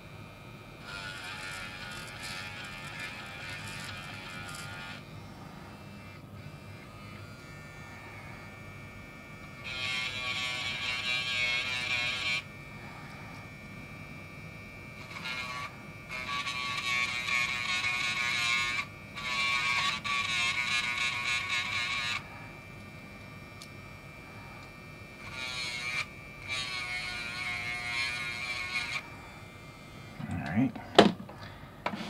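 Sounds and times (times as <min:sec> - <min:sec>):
rotary tool grinding plastic: 0:00.8 - 0:05.2, 0:15.0 - 0:22.3, 0:24.6 - 0:29.1.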